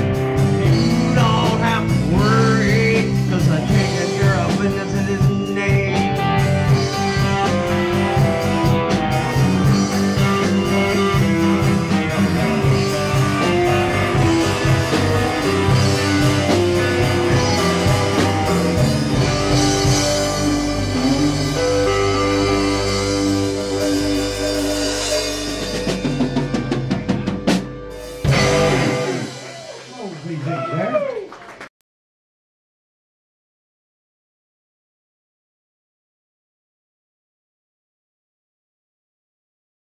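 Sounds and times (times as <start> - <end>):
drumming: 0.0 - 31.6
live rock band playing: 0.0 - 31.6.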